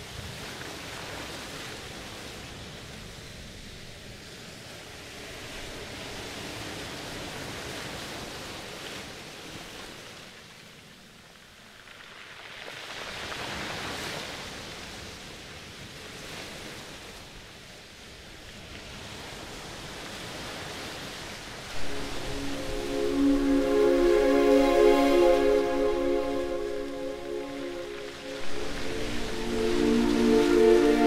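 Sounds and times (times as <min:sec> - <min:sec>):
rushing water-like noise: 0:21.8 - 0:31.0.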